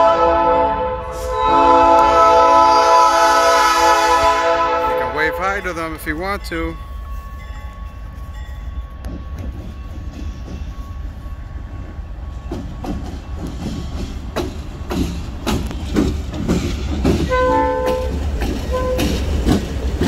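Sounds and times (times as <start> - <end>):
train horn: 0.0 - 5.6, 17.2 - 19.2
train wheels clacking on rails: 4.9 - 20.0.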